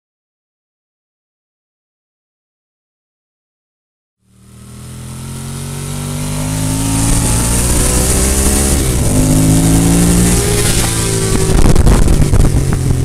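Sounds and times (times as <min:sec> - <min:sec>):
motorcycle engine accelerating: 0:04.2 - 0:13.0
wind rush: 0:06.5 - 0:13.0.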